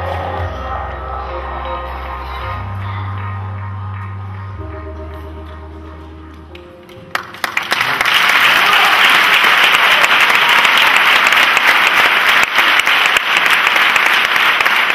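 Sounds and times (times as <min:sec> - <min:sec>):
audience applauding: 0:06.6 - 0:14.9.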